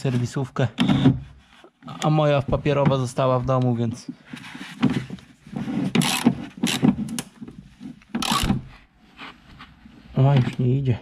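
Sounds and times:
wrench scraping and clicking: 0:05.7 - 0:07.3, 0:08.0 - 0:08.7.

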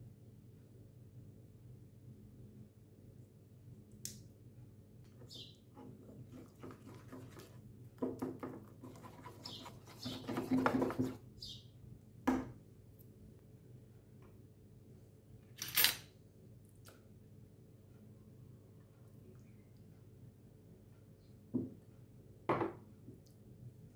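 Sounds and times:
whisk beating in ceramic bowl: 0:05.9 - 0:11.2
knock: 0:21.6 - 0:21.8, 0:22.5 - 0:22.8.

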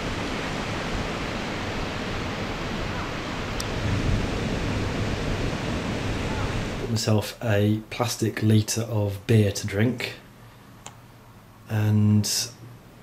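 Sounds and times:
sea surf on a beach: 0:00.0 - 0:08.0
wind: 0:00.0 - 0:13.0.

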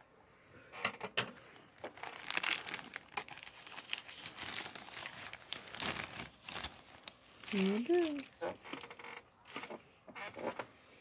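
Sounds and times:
plastic bag crinkling: 0:01.5 - 0:09.8.

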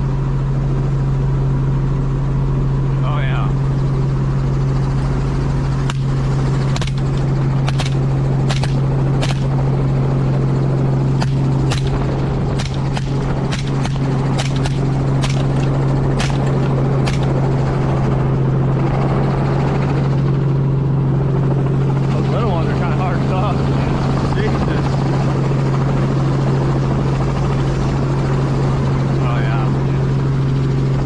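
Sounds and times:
helicopter engine and rotor drone: 0:00.0 - 0:31.0
rifle shots: 0:06.7 - 0:09.5, 0:11.1 - 0:17.4.

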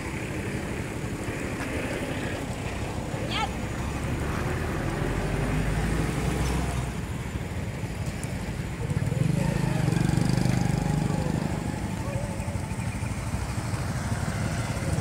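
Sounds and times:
vehicle engine hum: 0:00.0 - 0:15.0
vehicle passing close: 0:00.0 - 0:15.0.

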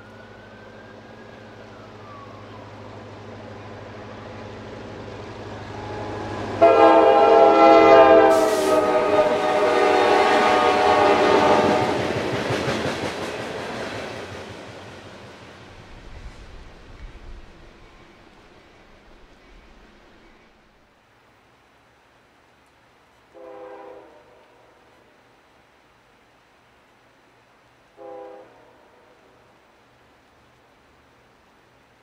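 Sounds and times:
locomotive horn chord: 0:05.6 - 0:12.2, 0:23.4 - 0:24.4, 0:28.0 - 0:28.9
train wheels clicking on rails: 0:08.2 - 0:20.8.

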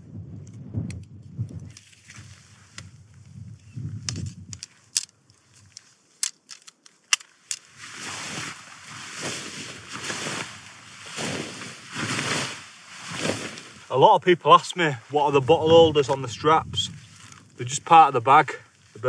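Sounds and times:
tent poles clicking: 0:00.4 - 0:03.0, 0:03.9 - 0:13.9
nylon fabric rustling and crumpling: 0:07.6 - 0:14.1.

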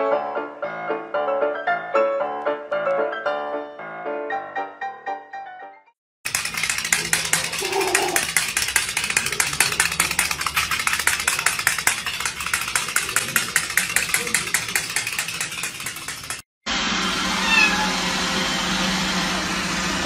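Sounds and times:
toy mechanism clicking rapidly: 0:06.3 - 0:16.4.

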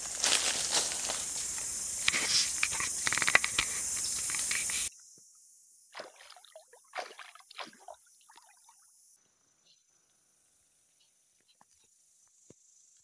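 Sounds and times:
footsteps on dry leaves and twigs: 0:00.0 - 0:04.9
steady high hiss: 0:00.0 - 0:05.0
river water splash: 0:05.9 - 0:08.5.

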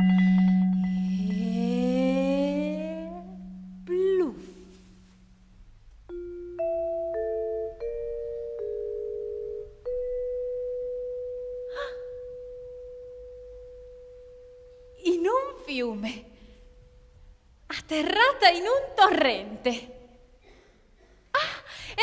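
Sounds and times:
vibraphone notes: 0:00.0 - 0:04.6, 0:05.3 - 0:15.5.

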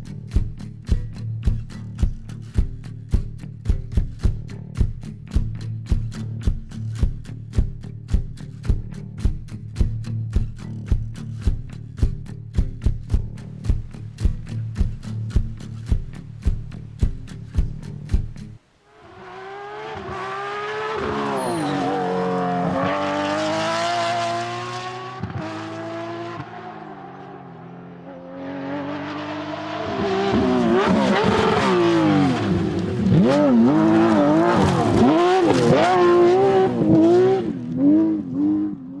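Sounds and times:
race car engine revving: 0:19.0 - 0:39.0.

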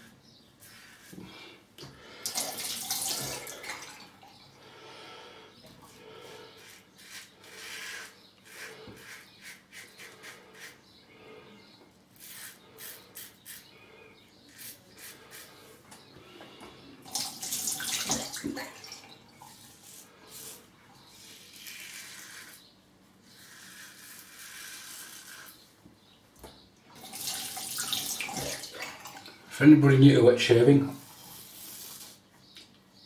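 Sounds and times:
razor scraping stubble: 0:06.2 - 0:11.0, 0:12.2 - 0:15.8, 0:19.7 - 0:25.7.

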